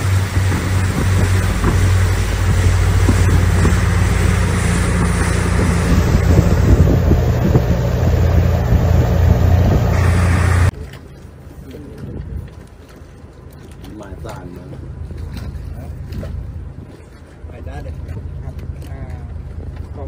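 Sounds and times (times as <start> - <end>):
boat engine droning: 0.0 - 11.7
wind buffeting microphone: 0.0 - 18.8
rushing water: 0.0 - 20.0.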